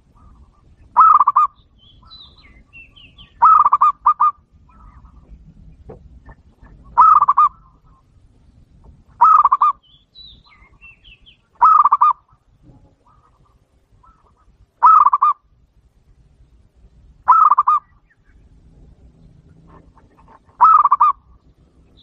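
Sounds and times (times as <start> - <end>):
dove cooing: 0.0 - 1.6, 2.4 - 5.4, 6.3 - 8.1, 9.2 - 9.8, 11.6 - 12.3, 12.9 - 15.4, 17.3 - 17.9, 19.6 - 21.4
small bird chirps: 0.2 - 5.4, 9.2 - 12.3.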